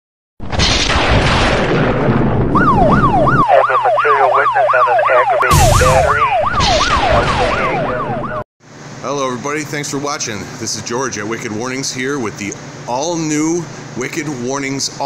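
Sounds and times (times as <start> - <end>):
electronic yelp siren: 2.5 - 8.4
loud whooshing bursts: 5.5 - 7.8.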